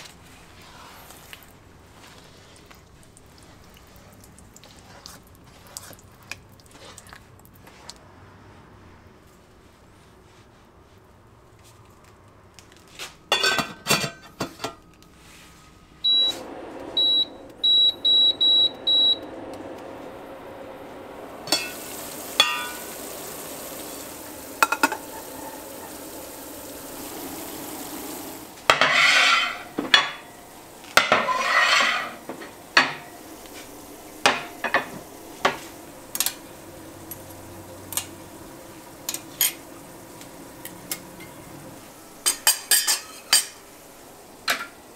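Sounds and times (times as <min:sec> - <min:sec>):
metal pots and utensils clanking: 0:13.3 - 0:14.8, 0:21.4 - 0:26.6, 0:28.6 - 0:33.2, 0:34.2 - 0:36.4, 0:39.0 - 0:39.7, 0:42.2 - 0:43.7, 0:44.4 - 0:44.8
steady hiss: 0:15.1 - 0:44.9
short electronic beeps: 0:16.0 - 0:16.4, 0:17.0 - 0:19.3.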